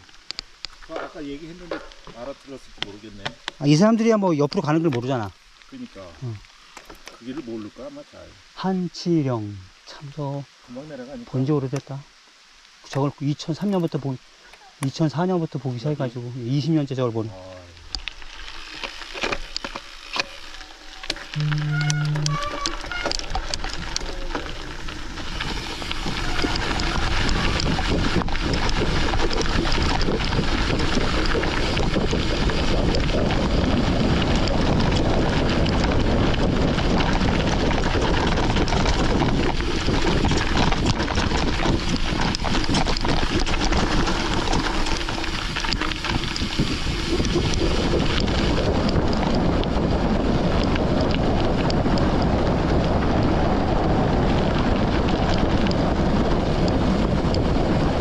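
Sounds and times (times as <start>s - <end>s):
bike tyres rattling on gravel: 0.0s - 10.1s, 14.8s - 58.0s
wind buffeting microphone: 21.3s - 58.0s.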